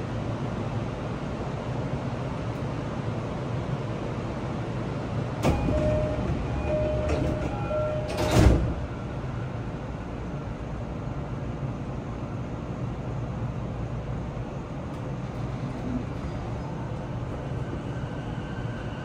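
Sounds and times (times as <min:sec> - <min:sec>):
stopped train humming: 0:00.0 - 0:19.0
sliding doors shutting with thud: 0:05.4 - 0:08.8
door chime notes: 0:05.5 - 0:08.5.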